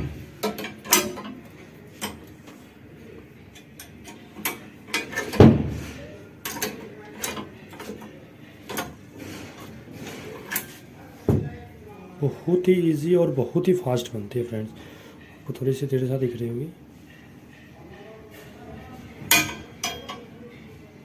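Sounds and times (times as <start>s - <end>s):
steel bar clanking in bending machine: 0.0s - 2.3s, 3.5s - 5.5s, 19.2s - 20.3s
heavy thump: 5.4s - 5.9s.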